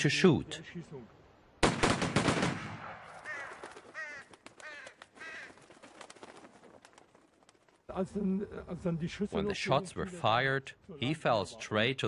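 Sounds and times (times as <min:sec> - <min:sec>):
volley of rifle shots: 0:01.6 - 0:03.7
crows cawing: 0:03.0 - 0:05.8.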